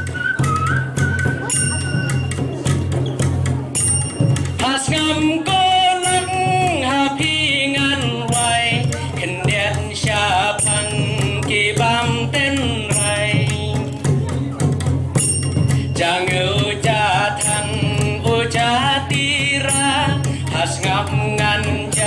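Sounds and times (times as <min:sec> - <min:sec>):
light percussion strikes: 0:00.0 - 0:22.0
man singing folk song: 0:04.6 - 0:14.3, 0:15.7 - 0:22.0.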